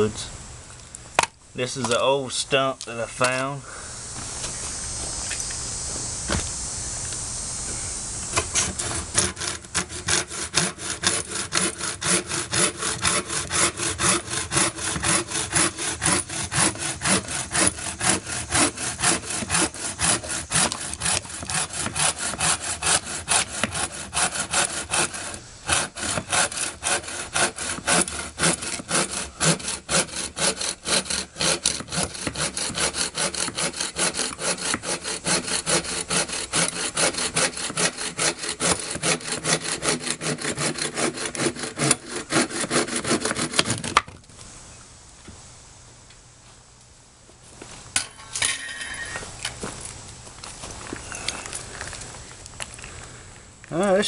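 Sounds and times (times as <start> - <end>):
bow saw cutting wood: 8.2 - 44.1.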